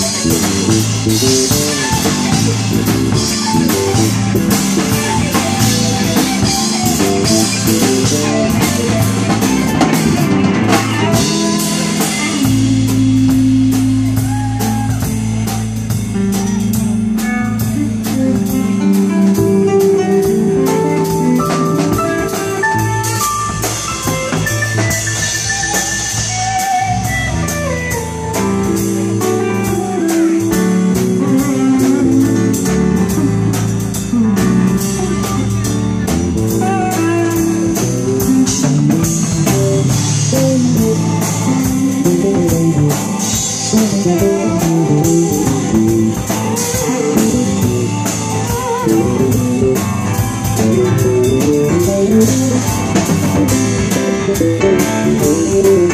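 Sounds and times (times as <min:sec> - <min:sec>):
bass guitar: 0:00.0 - 0:55.9
drum kit cymbals: 0:00.0 - 0:55.9
electric guitar lines: 0:00.0 - 0:55.9
keyboard: 0:00.0 - 0:55.9.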